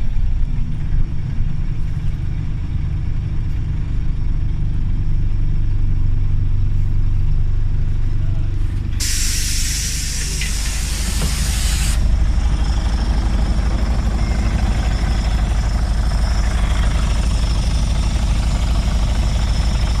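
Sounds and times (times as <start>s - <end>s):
bus engine idling: 0.0s - 20.0s
compressed air hissing: 9.0s - 12.7s.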